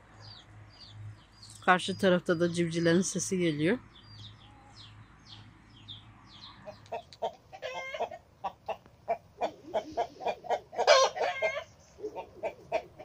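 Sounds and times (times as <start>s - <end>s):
chickens clucking: 6.4s - 13.0s.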